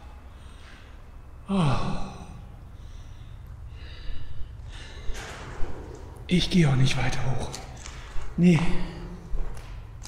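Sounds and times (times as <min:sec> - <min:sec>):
faint breathing: 0:00.0 - 0:05.5
man gasping oh: 0:01.5 - 0:02.4.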